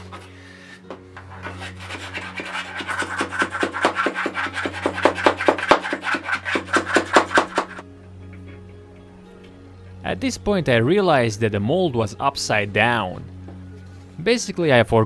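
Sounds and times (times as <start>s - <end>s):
wooden stick scraping gritty mix: 0.0s - 7.8s.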